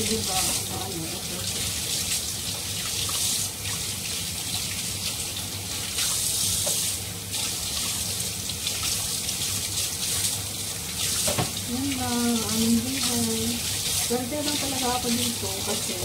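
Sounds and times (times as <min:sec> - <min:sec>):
tap running into a sink: 0:05.9 - 0:08.0, 0:11.0 - 0:16.0.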